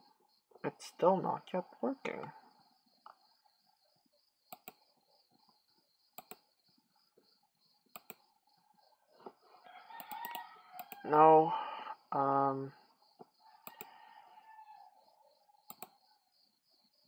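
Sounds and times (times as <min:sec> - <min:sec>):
computer mouse clicks: 0:04.5 - 0:04.9, 0:06.2 - 0:06.5, 0:07.9 - 0:08.2, 0:10.0 - 0:11.0, 0:13.2 - 0:13.9, 0:15.6 - 0:16.0.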